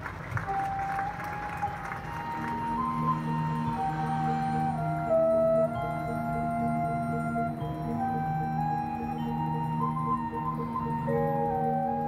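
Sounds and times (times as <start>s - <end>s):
marching band music: 0.3s - 6.2s.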